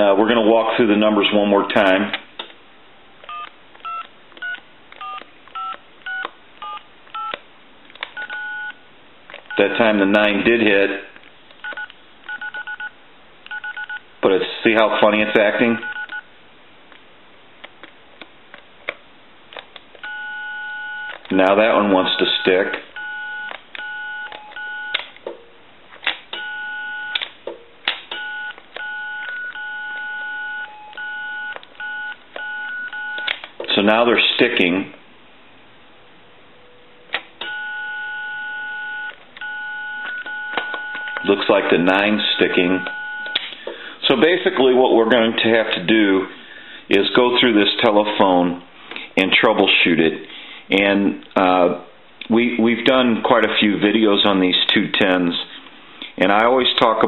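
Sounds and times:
telephone keypad beeps: 3.3s - 7.4s, 8.2s - 8.8s, 11.6s - 12.9s, 13.5s - 14.0s, 15.8s - 16.3s, 20.0s - 21.2s, 22.2s - 25.0s, 26.4s - 27.2s, 28.2s - 33.3s, 37.4s - 41.3s, 42.3s - 43.4s.

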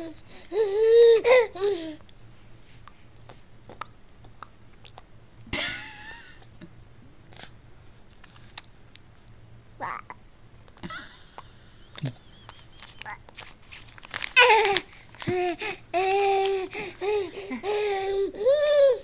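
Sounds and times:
infant wet mouth clicks and smacks: 2.8s - 5.5s, 8.2s - 9.4s
infant high-pitched vocal sound: 9.8s - 10.2s.

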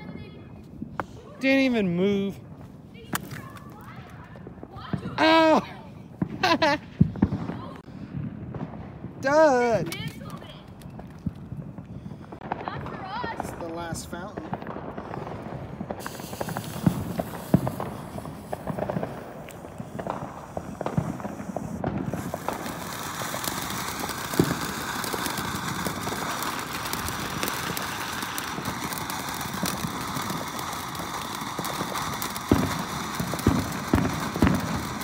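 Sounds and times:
firework pops and knocks: 3.0s - 5.6s, 9.7s - 35.0s
firework fountain hissing spray: 3.1s - 7.9s, 12.1s - 35.0s.

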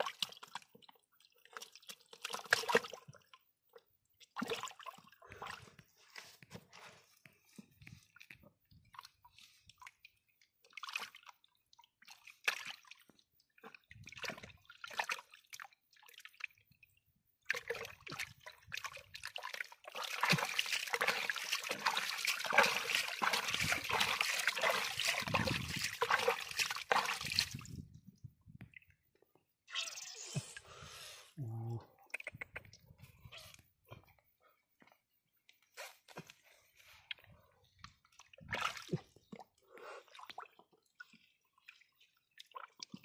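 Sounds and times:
water splashing and sloshing: 0.0s - 29.4s, 35.6s - 43.0s.

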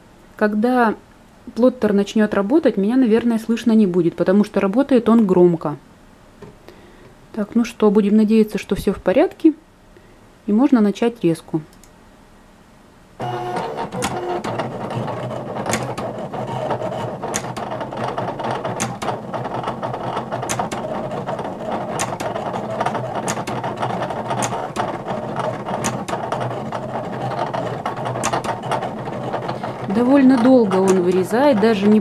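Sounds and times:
cutting plotter motors whirring: 13.2s - 32.0s
sharp mechanical clicks: 13.2s - 32.0s.

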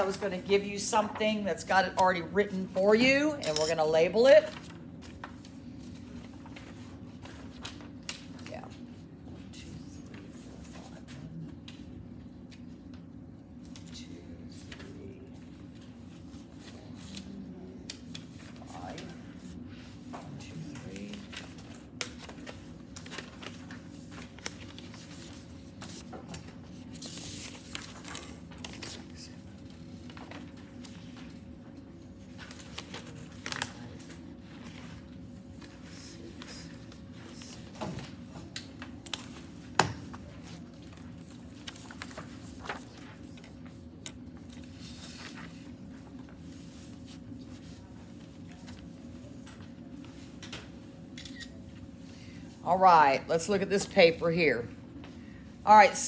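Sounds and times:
room hum with faint tone: 0.0s - 56.0s
paper rustling and sliding: 40.1s - 50.3s.

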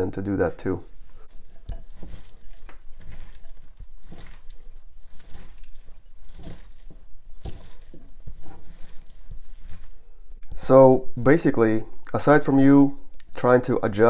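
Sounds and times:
wet squelching of mushrooms: 1.0s - 10.7s.

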